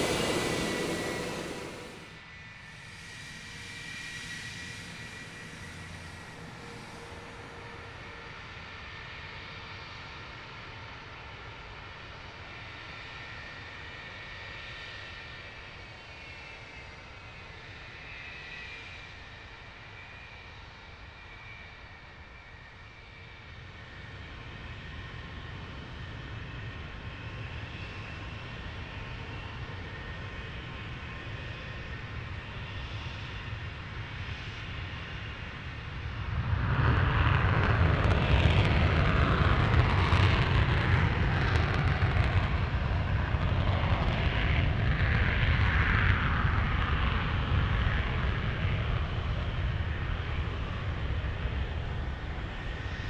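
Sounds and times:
jet engines whining: 0:00.0 - 0:02.2
jet takeoff roar: 0:00.0 - 0:02.2, 0:36.0 - 0:53.0.

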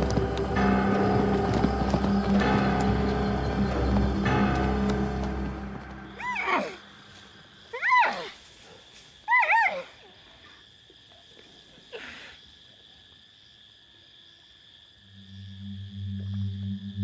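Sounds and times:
low music drone: 0:00.0 - 0:06.9, 0:15.1 - 0:17.0
high insect drone: 0:00.0 - 0:17.0.

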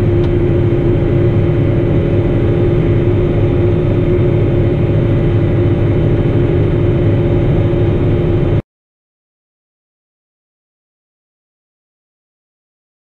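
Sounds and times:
tractor diesel engine droning: 0:00.0 - 0:08.6.

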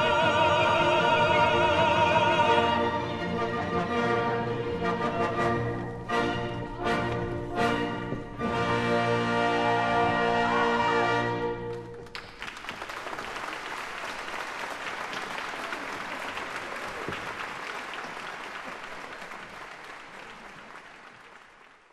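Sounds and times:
audience applauding: 0:11.6 - 0:21.9.

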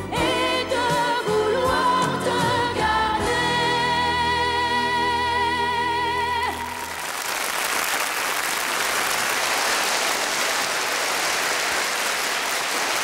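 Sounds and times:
woman singing with vibrato: 0:00.0 - 0:06.9
audience applauding: 0:06.6 - 0:13.0.

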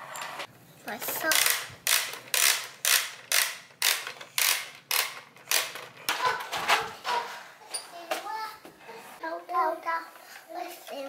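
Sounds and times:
toy winch crank creaking: 0:01.0 - 0:06.4.

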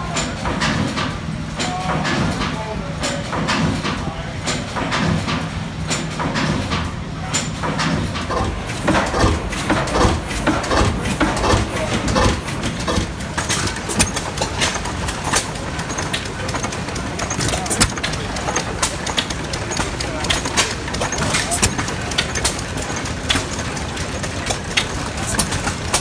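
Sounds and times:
small gas engine clicking and knocking: 0:08.3 - 0:26.0
steam engine exhaust beating: 0:08.3 - 0:26.0.

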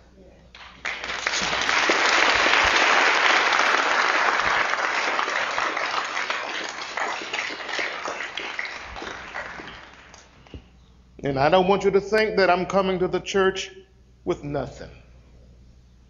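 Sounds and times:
audience applauding: 0:00.6 - 0:10.4.

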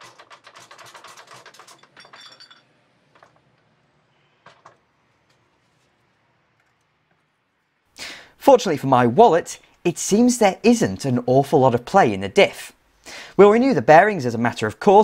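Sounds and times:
metallic clicking and clinking: 0:00.0 - 0:03.7
metal ringing: 0:01.7 - 0:02.8.

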